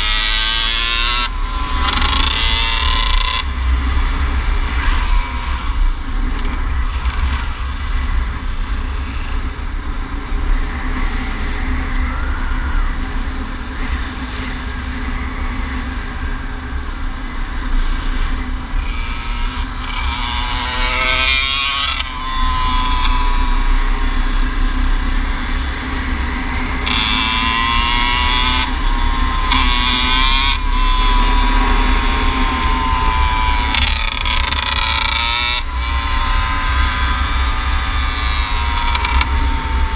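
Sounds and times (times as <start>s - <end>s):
wind rumble on microphone: 0.0s - 39.9s
dirt bike engine revving: 18.8s - 24.4s, 26.4s - 39.9s.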